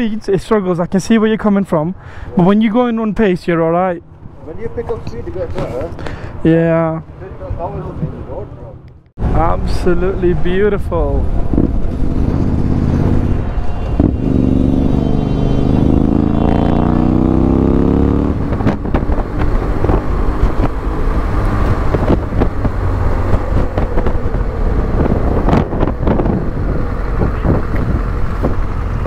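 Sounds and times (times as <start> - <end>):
wind and road noise: 0.0 - 29.0
motorcycle engine accelerating: 11.3 - 29.0.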